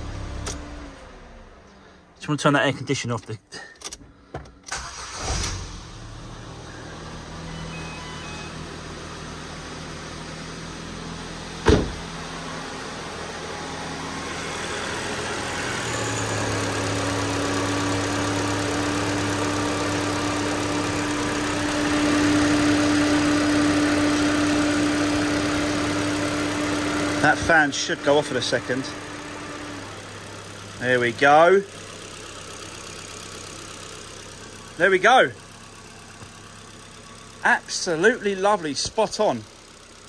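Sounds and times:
car engine idling: 0.0s - 40.0s.

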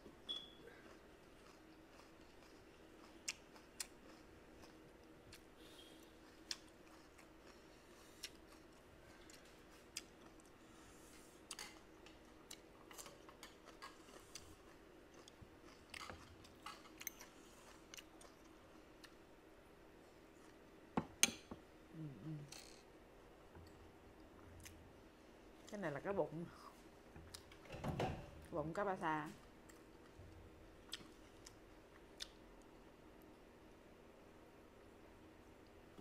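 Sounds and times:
faint steady hum: 0.0s - 36.0s
person chewing food: 0.6s - 19.3s, 27.3s - 27.5s, 29.6s - 33.4s.

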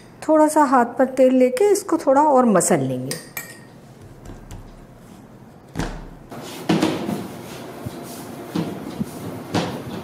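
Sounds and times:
soft rubbing of dough: 4.9s - 5.5s, 6.3s - 10.0s.

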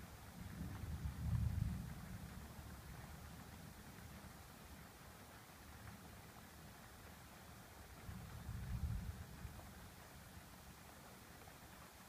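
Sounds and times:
distant thunder rumbling: 0.4s - 2.9s.

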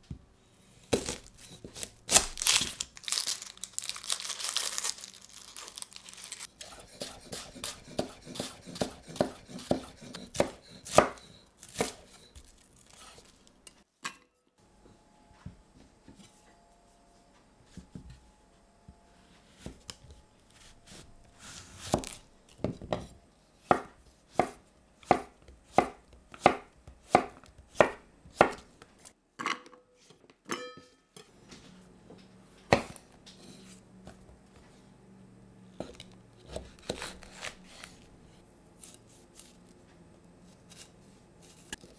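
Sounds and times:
knife chopping on wooden board: 6.6s - 12.3s, 20.6s - 28.7s, 32.7s - 33.0s, 35.8s - 37.9s.

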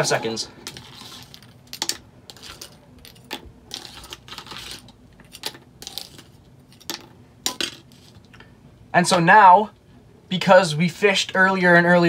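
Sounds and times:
crackers dropping into plastic cup: 0.6s - 8.1s.

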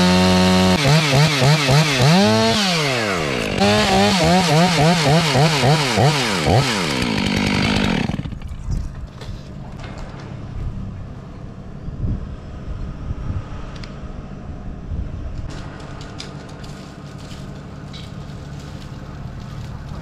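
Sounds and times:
chainsaw idling: 0.0s - 8.5s.

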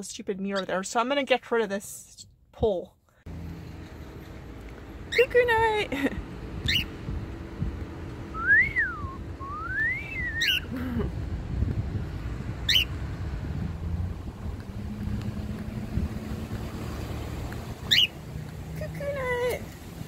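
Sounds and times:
low steady rumble: 3.8s - 16.6s
cockatiel chirping: 6.6s - 6.9s, 10.4s - 10.7s, 12.7s - 12.9s, 17.9s - 18.1s
rising and falling whistles: 8.3s - 10.7s.

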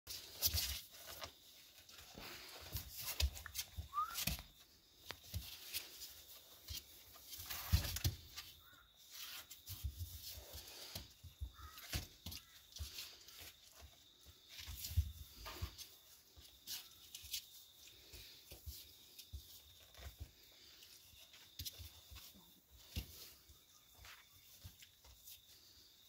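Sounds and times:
puppies scrabbling on a blanket: 0.1s - 25.7s.

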